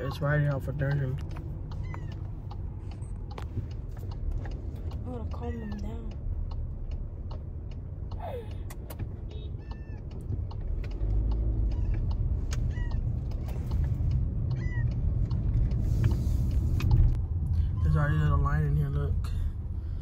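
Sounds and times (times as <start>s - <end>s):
car low rumble: 0.0s - 20.0s
cat meowing: 9.6s - 10.0s.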